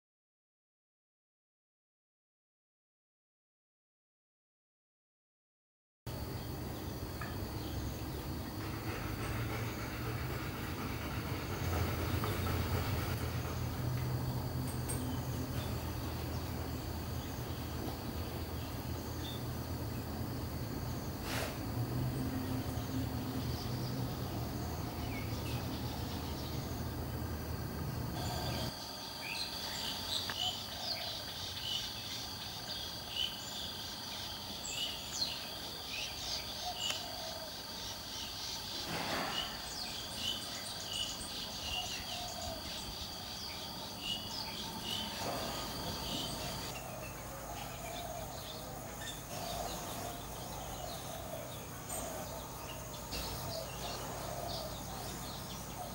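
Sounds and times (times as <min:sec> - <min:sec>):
high-pitched insect trill: 0:06.1 - 0:55.9
small birds chirping: 0:28.1 - 0:55.9.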